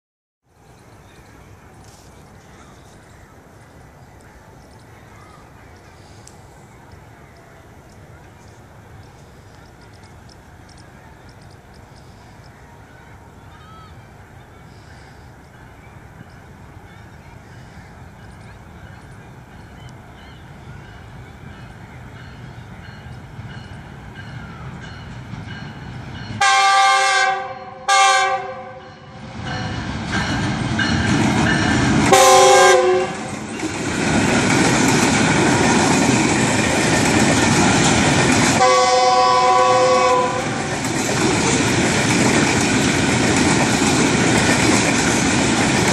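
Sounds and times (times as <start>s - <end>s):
locomotive horn blasts: 26.4s - 29.3s, 32.1s - 33.4s, 38.6s - 40.7s
freight wagons rolling rumble: 32.8s - 45.9s.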